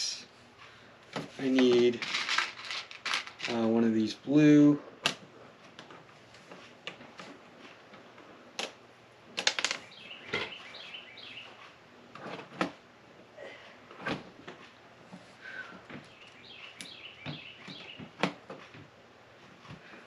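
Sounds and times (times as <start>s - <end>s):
plastic pieces clicking together: 1.9s - 3.6s, 9.4s - 9.8s.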